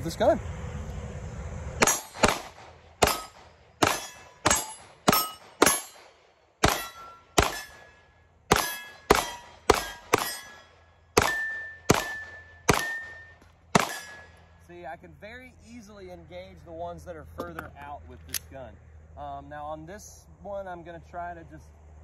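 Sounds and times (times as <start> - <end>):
steel target ringing: 1.8 - 2.4, 3.0 - 6.0, 6.6 - 14.5
pistol shots: 1.8 - 10.6, 11.2 - 14.4.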